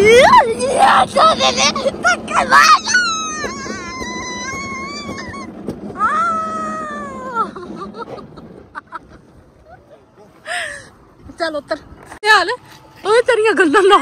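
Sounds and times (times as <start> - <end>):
person squealing: 0.0 - 7.6
sled running rumble: 0.0 - 14.0.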